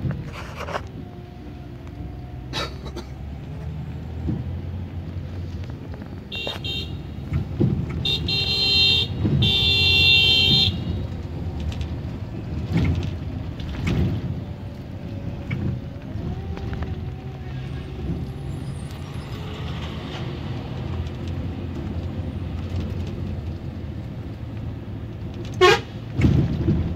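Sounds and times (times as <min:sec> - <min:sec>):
bus engine running: 0:00.0 - 0:26.9
bus horn: 0:06.3 - 0:07.3, 0:07.9 - 0:11.2, 0:25.5 - 0:26.0.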